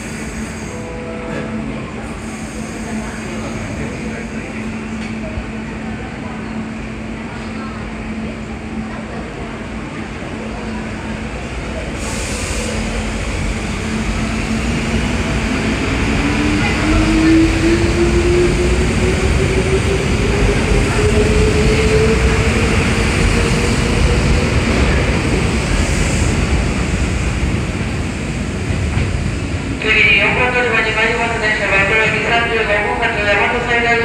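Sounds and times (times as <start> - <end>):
train wheels rumbling on rails: 0.0 - 34.0.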